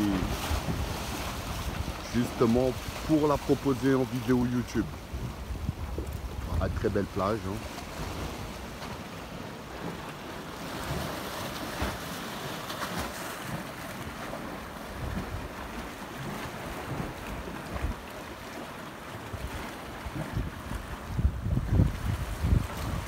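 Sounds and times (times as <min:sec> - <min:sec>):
wind buffeting microphone: 0:00.0 - 0:09.0, 0:14.9 - 0:18.2, 0:19.3 - 0:23.0
small waves on shore: 0:00.0 - 0:23.0.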